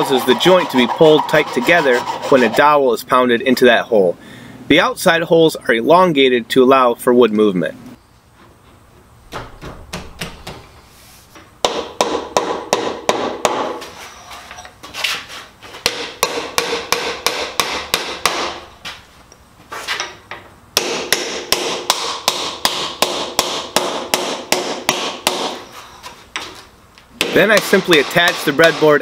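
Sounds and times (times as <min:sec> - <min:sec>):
hammer driving wooden dowels: 0:27.2 - 0:29.0.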